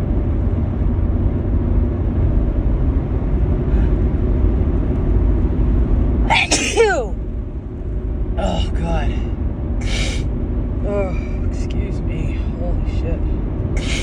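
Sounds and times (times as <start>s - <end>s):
low steady rumble: 0.0s - 14.0s
woman sneezing: 6.3s - 7.1s, 13.8s - 14.0s.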